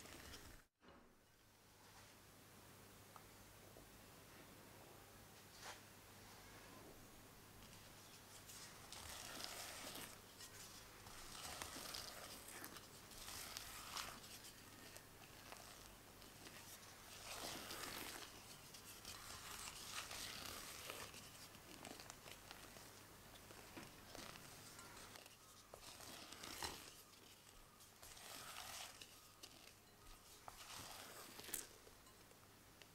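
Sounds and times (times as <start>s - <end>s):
spatula folding batter in bowl: 0.0s - 0.6s, 7.6s - 32.9s.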